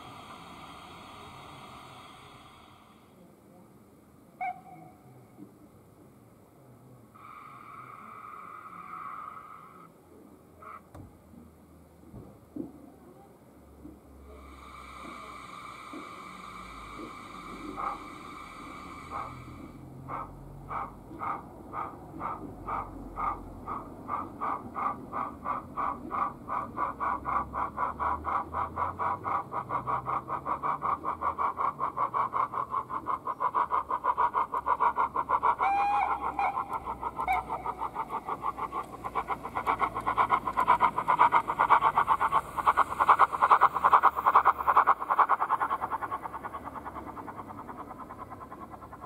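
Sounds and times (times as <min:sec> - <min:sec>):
model steam engine chuffing: 0:00.0 - 0:03.5, 0:13.8 - 0:49.0.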